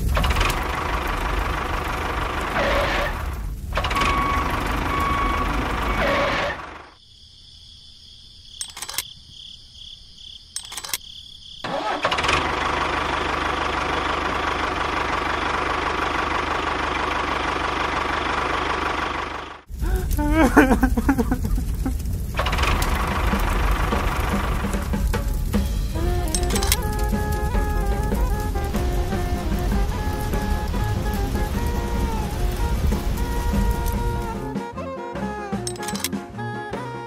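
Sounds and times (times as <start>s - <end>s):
small clicks: 0.0s - 1.2s, 1.8s - 6.5s, 8.6s - 9.2s, 10.5s - 11.1s, 20.8s - 23.6s, 26.0s - 31.8s, 35.6s - 36.2s
tractor engine running: 0.0s - 7.0s, 10.6s - 11.0s, 11.7s - 36.2s.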